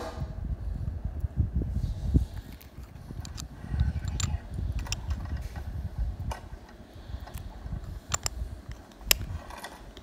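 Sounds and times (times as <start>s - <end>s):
watch caseback clicking: 2.6s - 5.2s, 8.1s - 8.4s.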